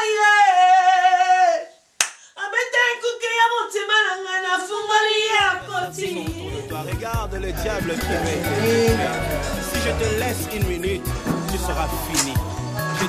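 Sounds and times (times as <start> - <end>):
woman singing unaccompanied: 0.0 - 1.8, 2.4 - 10.6.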